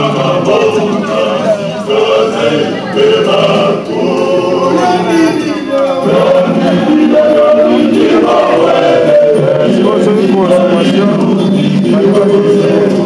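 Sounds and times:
group of voices singing: 0.0s - 13.0s.

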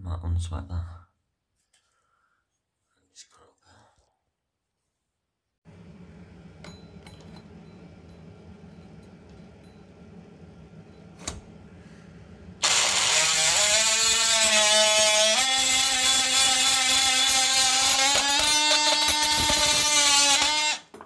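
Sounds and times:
multi-tool cutting pipe: 12.6s - 21.0s.

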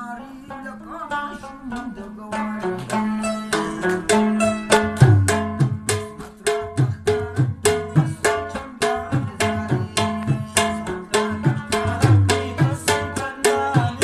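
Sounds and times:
plucked lute notes: 0.5s - 6.3s.

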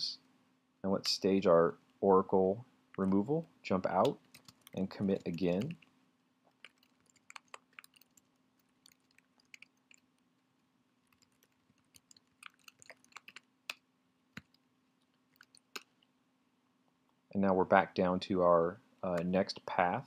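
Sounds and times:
typing on computer keyboard: 4.1s - 5.8s, 6.5s - 10.0s, 11.1s - 13.5s.

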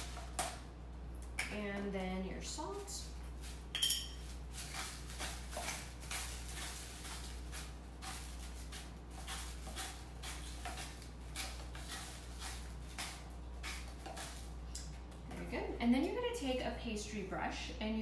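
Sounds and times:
salt grinder crunching: 3.3s - 14.9s.

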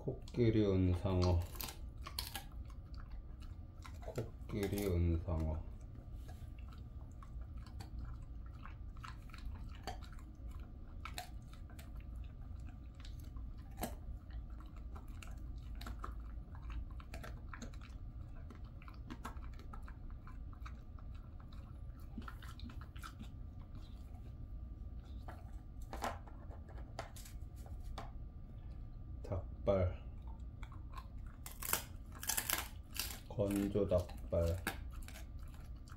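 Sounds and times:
low steady hum: 0.0s - 35.9s
dog chewing treat: 0.1s - 27.2s, 30.0s - 35.9s.

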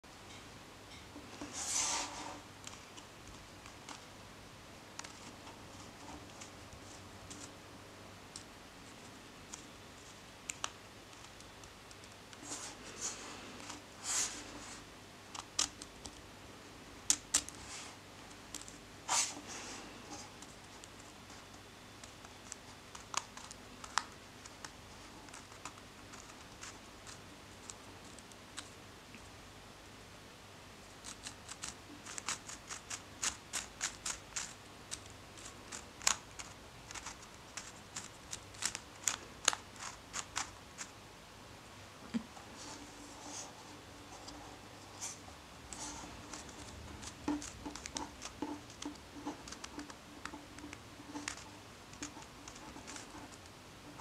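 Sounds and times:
plastic iris clicking and scraping: 15.3s - 16.2s, 31.0s - 40.9s, 45.0s - 54.0s.

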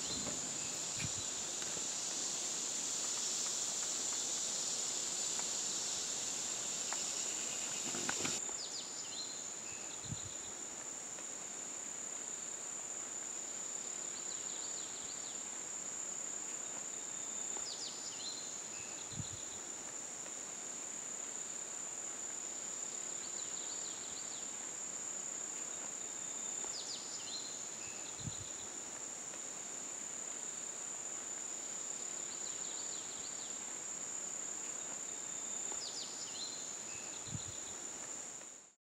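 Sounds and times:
insects trilling: 0.0s - 10.7s, 21.0s - 38.5s.

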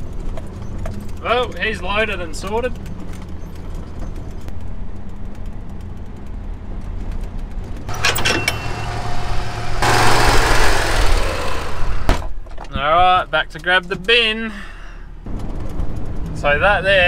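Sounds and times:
vehicle engine running: 0.0s - 12.4s
metal clanks of tow hitch: 7.9s - 9.3s
loud steady rushing noise: 8.9s - 12.2s.

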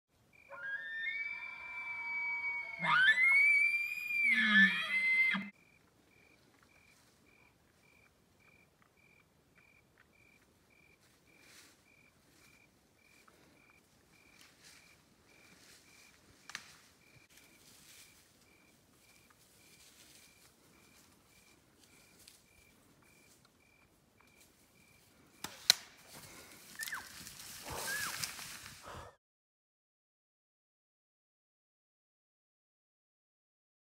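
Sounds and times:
rustling of brush: 11.0s - 23.5s, 24.3s - 29.0s
sharp snaps: 25.4s - 26.0s
faint high chirp: 26.8s - 27.1s.

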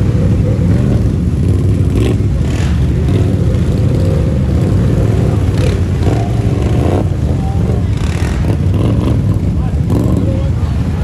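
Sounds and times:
quad engine running: 0.0s - 11.0s.

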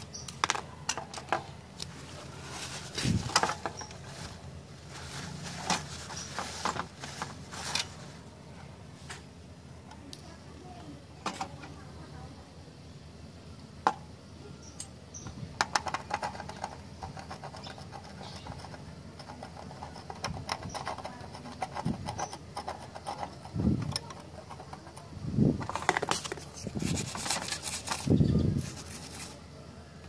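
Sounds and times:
wire brush scrubbing: 25.6s - 29.4s.

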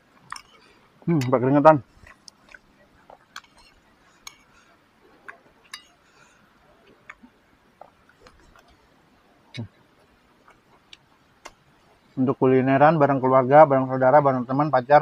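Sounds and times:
faint chewing: 0.0s - 1.2s, 1.8s - 11.9s
plate clinking: 3.2s - 4.6s, 5.6s - 6.0s.

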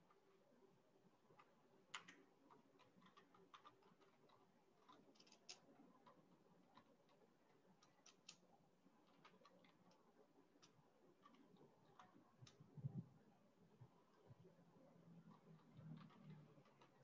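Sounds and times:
soft clicks: 1.3s - 13.0s.

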